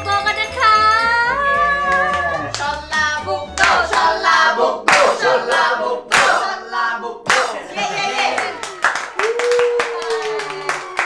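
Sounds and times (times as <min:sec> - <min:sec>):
hand claps: 0:01.9 - 0:04.1, 0:04.9 - 0:06.5, 0:07.3 - 0:07.6, 0:08.4 - 0:11.0.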